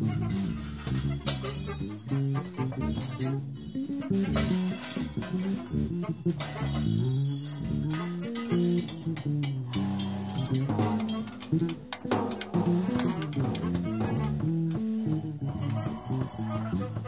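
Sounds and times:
bass guitar line: 0.0s - 17.0s
drum kit playing busy hits: 0.0s - 17.0s.

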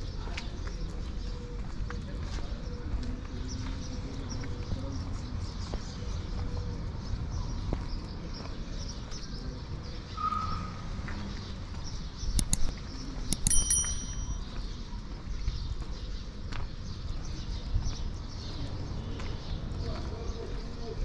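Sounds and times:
sharp clicks: 12.2s - 14.3s
ringing clink: 12.4s - 14.5s.

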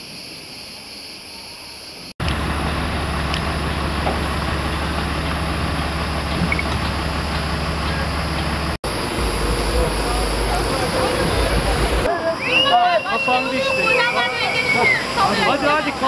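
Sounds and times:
diesel truck engine hum: 2.2s - 16.0s
steady high hiss: 8.9s - 16.0s.

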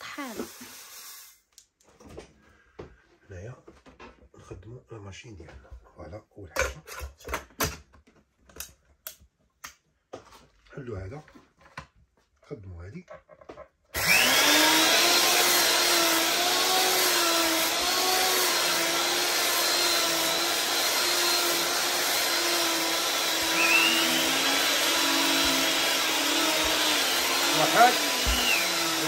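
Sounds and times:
electric grinder motor whine: 14.0s - 29.0s.

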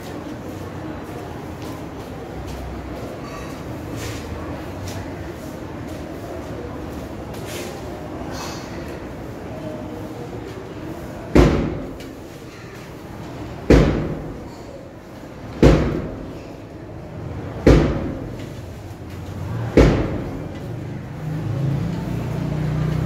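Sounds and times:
loud echoing thuds: 11.3s - 12.0s, 13.6s - 14.5s, 15.6s - 16.4s, 17.6s - 18.4s, 19.7s - 20.5s.

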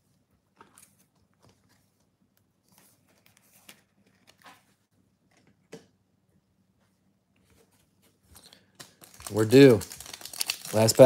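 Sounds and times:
trading cards rustling and clicking: 8.2s - 11.0s.

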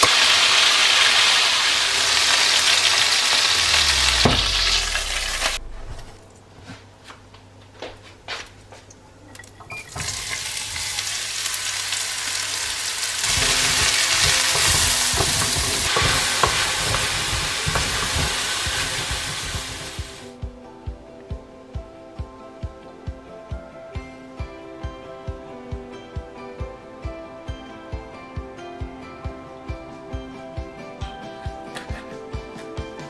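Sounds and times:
onions sizzling in hot fat: 0.0s - 5.6s, 9.9s - 20.3s
wooden spoon scraping and knocking pot: 13.2s - 20.2s.

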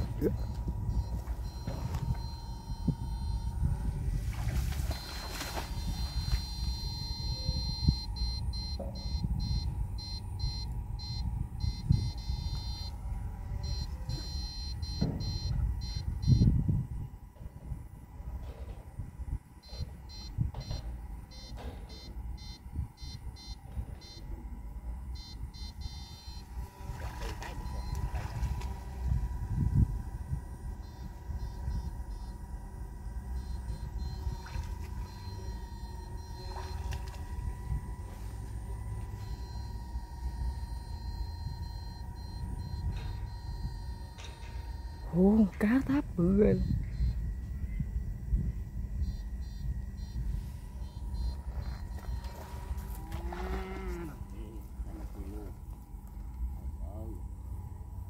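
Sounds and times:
high-pitched electrical whine: 0.0s - 58.0s
wind rumble on microphone: 0.0s - 58.0s
wading through grass: 3.8s - 7.1s, 26.5s - 28.8s, 34.2s - 37.3s, 50.2s - 55.8s
high-pitched electronic beeping: 4.9s - 13.0s, 13.6s - 16.5s, 39.0s - 47.2s, 49.0s - 52.7s.

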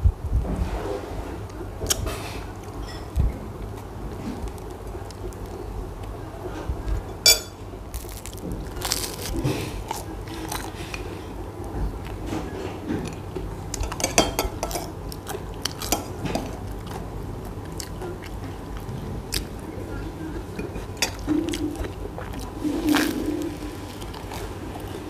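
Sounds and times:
chewing crusty bread: 1.8s - 7.1s, 7.8s - 25.0s
metal spoon clinking on glass: 7.2s - 7.6s.

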